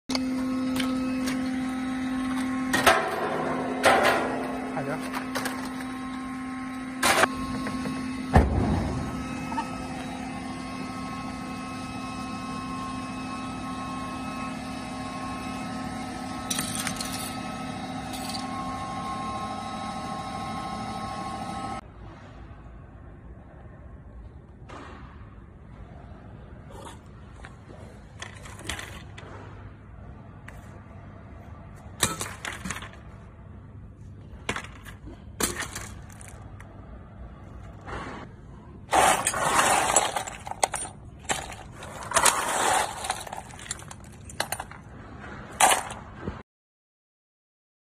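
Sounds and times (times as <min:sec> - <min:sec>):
machine motor humming: 0:00.1 - 0:21.8
circuit boards clattering: 0:32.0 - 0:33.2, 0:34.4 - 0:36.6, 0:38.9 - 0:44.9, 0:45.5 - 0:46.2.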